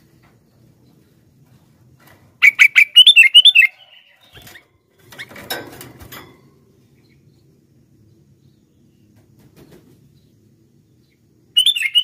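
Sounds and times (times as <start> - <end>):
bird chirping calls: 2.4 - 5.4, 6.9 - 12.0
wings rustling in cage: 4.2 - 6.5.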